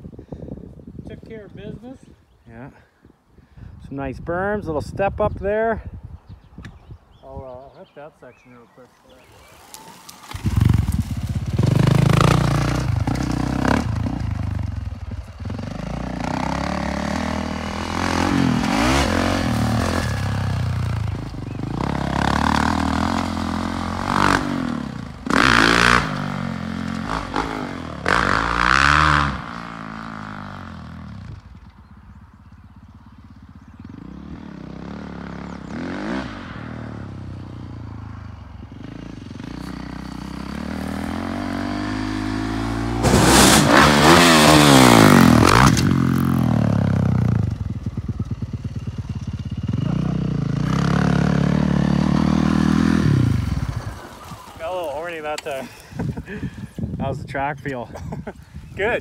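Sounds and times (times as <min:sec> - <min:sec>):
motocross bike engine revving: 0:09.4 - 0:56.5.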